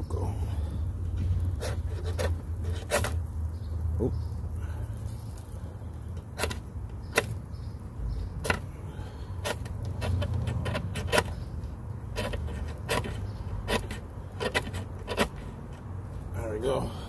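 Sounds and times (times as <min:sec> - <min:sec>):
wood shavings fire crackling: 0:00.0 - 0:16.8
sharp pops: 0:06.2 - 0:07.5.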